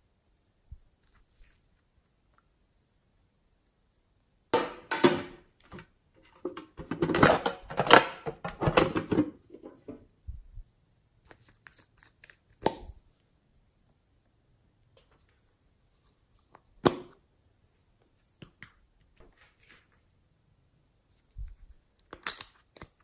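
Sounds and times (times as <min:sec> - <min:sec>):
crackling and scraping of containers: 0:04.7 - 0:10.1.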